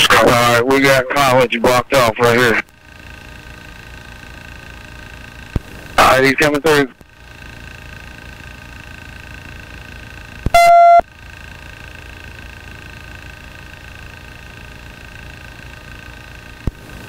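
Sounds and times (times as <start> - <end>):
helicopter cabin hum: 0.0 - 11.7
loud electronic beep: 10.5 - 11.0.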